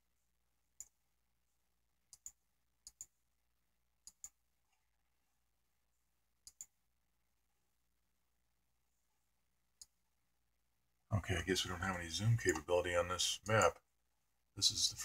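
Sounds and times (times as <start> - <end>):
computer mouse clicking: 2.1 - 3.2, 4.0 - 4.4, 6.4 - 6.8.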